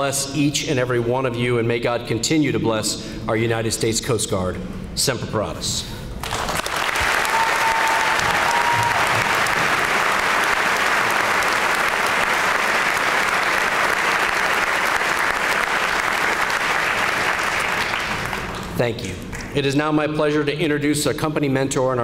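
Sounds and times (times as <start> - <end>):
large audience applauding: 6.2 - 19.5.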